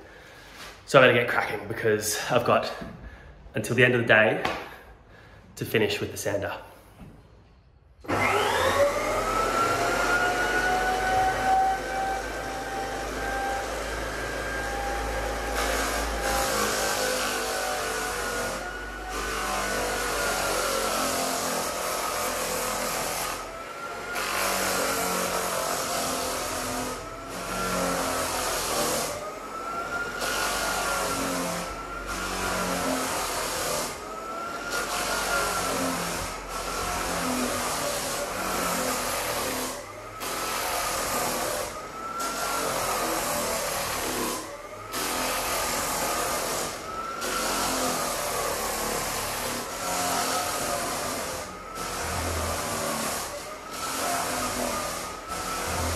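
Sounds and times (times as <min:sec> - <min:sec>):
drum floor sander running: 0:08.1 - 0:55.9.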